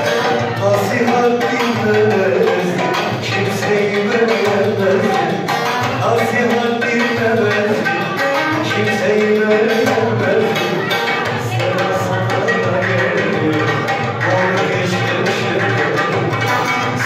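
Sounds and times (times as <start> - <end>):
keyboard melody: 0.0 - 17.0
steady drum rhythm: 0.0 - 17.0.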